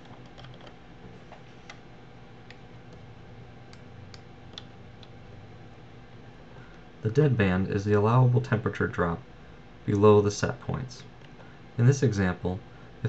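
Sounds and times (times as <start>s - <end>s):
keyboard and mouse clicks: 0.0s - 1.8s
low steady hum: 0.0s - 13.0s.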